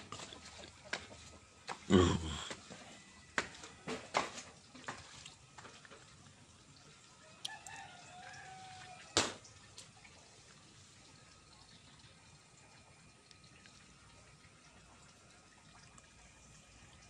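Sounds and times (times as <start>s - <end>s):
rooster crowing faintly: 7.2s - 9.4s.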